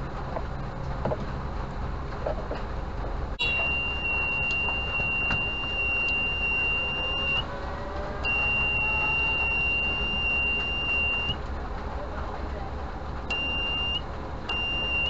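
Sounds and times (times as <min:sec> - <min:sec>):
alarm buzzer high-pitched beep: 0:03.4 - 0:07.4, 0:08.3 - 0:11.4, 0:13.3 - 0:15.0.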